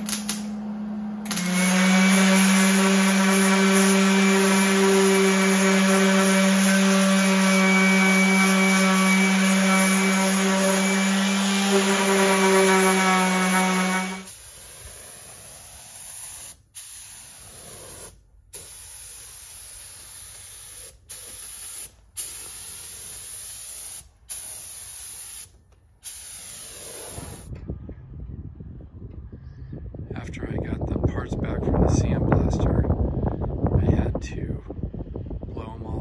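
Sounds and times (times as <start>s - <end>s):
power tool high whine: 0.9s - 14.3s
paint spray gun hissing: 1.3s - 10.9s, 11.7s - 27.5s.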